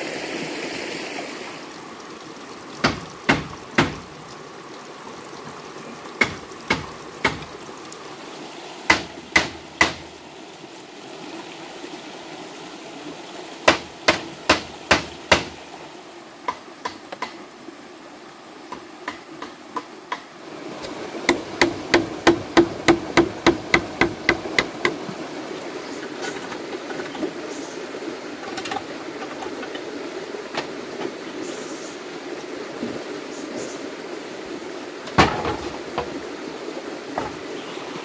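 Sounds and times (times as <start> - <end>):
stream rushing: 0.0 - 38.0
blade chopping hollow bamboo: 2.8 - 4.0, 6.2 - 7.5, 8.9 - 10.1, 13.7 - 15.6, 21.3 - 25.0.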